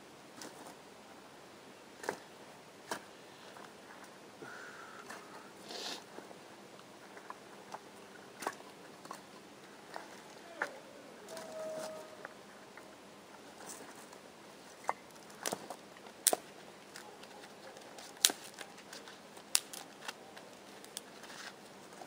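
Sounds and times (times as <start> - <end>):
faint hiss: 0.0 - 17.0
sharp clicks and snaps: 19.4 - 21.1.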